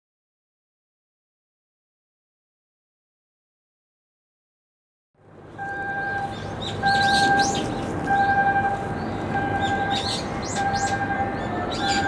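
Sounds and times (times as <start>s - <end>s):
electronic alarm beeping: 5.6s - 12.0s
small birds chirping: 6.0s - 8.3s, 9.0s - 12.0s.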